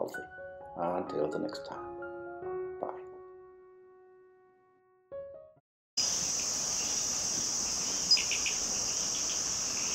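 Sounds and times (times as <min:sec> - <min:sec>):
crickets chirping: 0:06.0 - 0:09.9.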